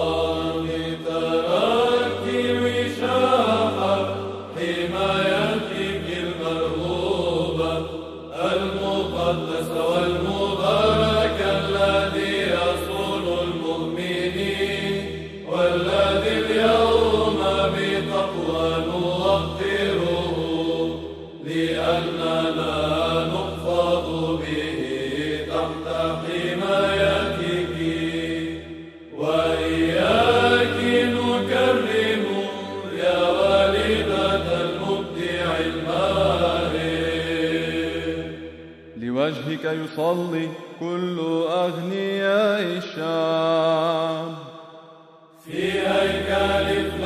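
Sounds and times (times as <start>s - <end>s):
low held vocal drone: 0.0s - 44.8s, 45.4s - 47.0s
person chanting melismatic melody: 39.0s - 44.4s.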